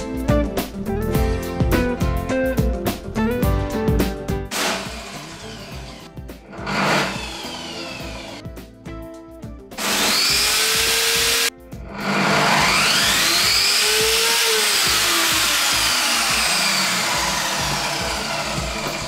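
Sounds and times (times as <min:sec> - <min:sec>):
table saw motor whining: 0:04.5 - 0:08.4, 0:09.8 - 0:19.0.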